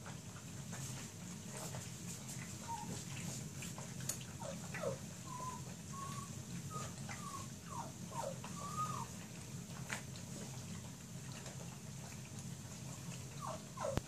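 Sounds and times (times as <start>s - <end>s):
steady low hum: 0.0s - 14.0s
puppies whimpering and squeaking: 1.5s - 9.8s, 12.9s - 14.0s.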